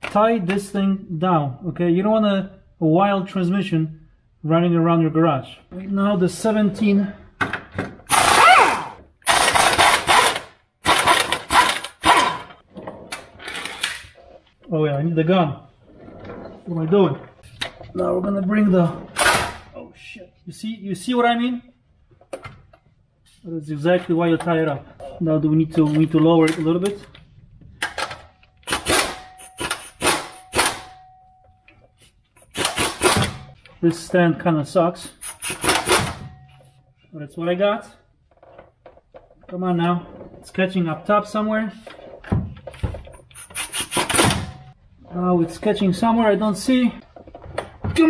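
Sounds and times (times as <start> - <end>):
pneumatic impact wrench: 8.1 - 12.6, 28.6 - 30.9, 32.4 - 33.4, 35.1 - 36.3, 43.3 - 44.6.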